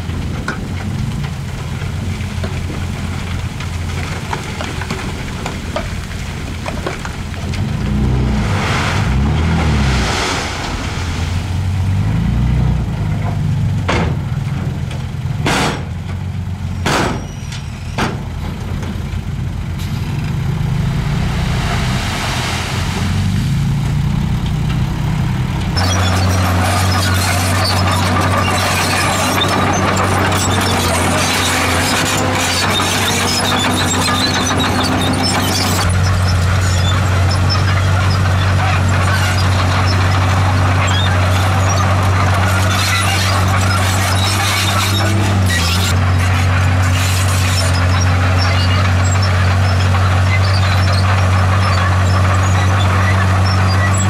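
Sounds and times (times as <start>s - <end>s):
bulldozer diesel engine: 0.0s - 54.0s
bulldozer tracks squealing: 0.0s - 54.0s
diesel truck engine revving: 0.0s - 54.0s
rock and dirt sliding off: 1.0s - 12.9s, 25.7s - 54.0s.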